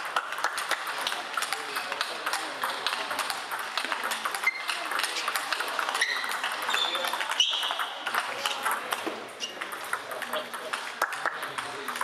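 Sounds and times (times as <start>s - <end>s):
table tennis balls clicking: 0.0s - 12.0s
short high squeaks: 6.0s - 7.9s.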